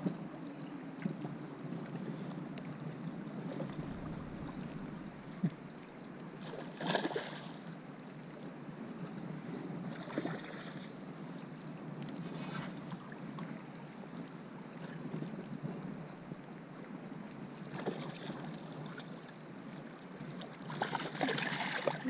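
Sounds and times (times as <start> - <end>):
wind on microphone: 0.0 - 6.4
water lapping and sloshing: 0.0 - 22.0
water splashes: 3.4 - 7.7, 9.9 - 10.9, 17.7 - 19.4, 20.4 - 22.0.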